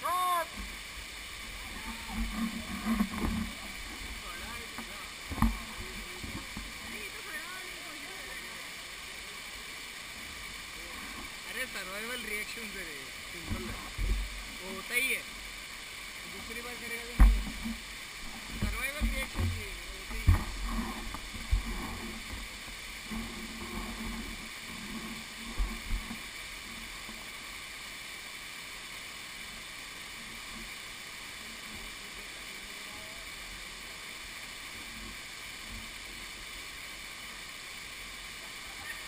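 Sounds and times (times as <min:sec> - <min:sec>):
waterfall roaring: 0:00.0 - 0:39.0
low thumps on microphone: 0:05.3 - 0:06.7, 0:13.5 - 0:14.4, 0:17.1 - 0:26.2.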